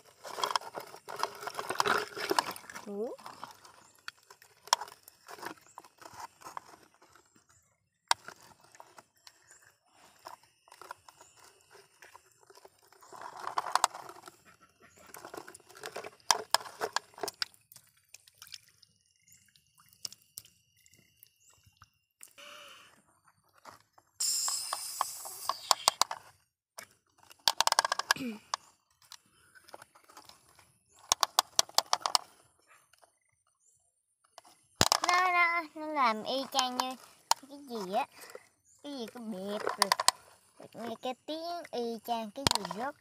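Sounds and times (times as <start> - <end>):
plastic toys clicking: 0.0 - 7.2, 8.1 - 14.4, 15.1 - 17.5, 24.5 - 32.4, 34.4 - 43.0
scraping in mud: 0.0 - 18.6.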